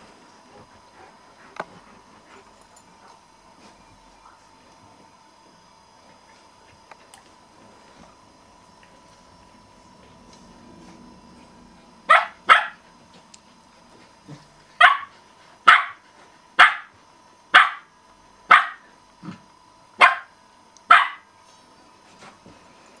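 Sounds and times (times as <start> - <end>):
dog barking: 12.1 - 12.8, 14.8 - 15.1, 15.7 - 16.0, 16.6 - 16.9, 17.5 - 17.9, 18.5 - 18.9, 20.0 - 20.3, 20.9 - 21.3.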